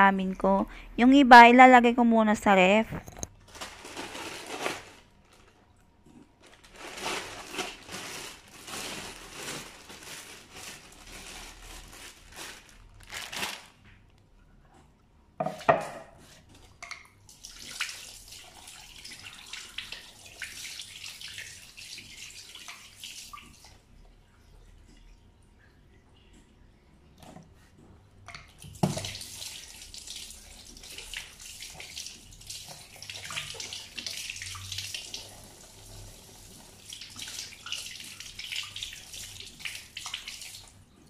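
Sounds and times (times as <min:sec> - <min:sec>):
plastic bag rustling: 0:03.3 - 0:13.9.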